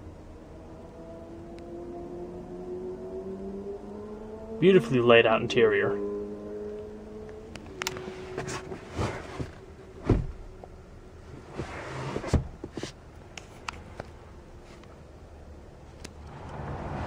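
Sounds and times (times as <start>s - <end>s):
soft thumps and knocks: 8.3s - 10.4s
hand rubbing leather seat: 11.3s - 13.6s.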